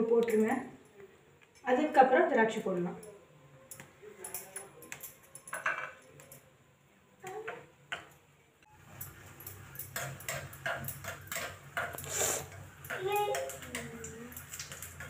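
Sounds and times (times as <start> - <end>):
cashews sizzling in oil: 8.6 - 15.0
metal spoon scraping pan: 8.9 - 15.0.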